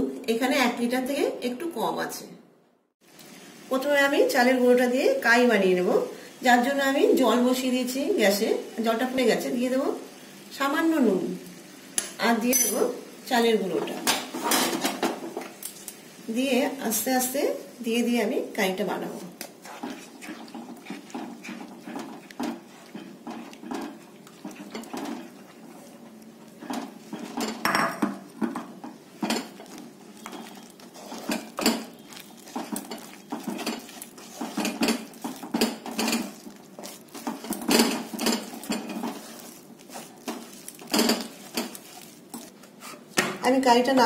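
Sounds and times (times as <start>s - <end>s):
spatula scraping a pan: 19.1s - 43.2s.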